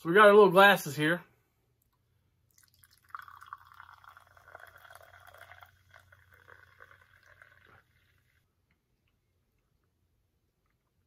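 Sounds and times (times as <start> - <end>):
faint fizzing hiss: 2.4 - 8.8
soda poured into a glass: 2.5 - 8.5.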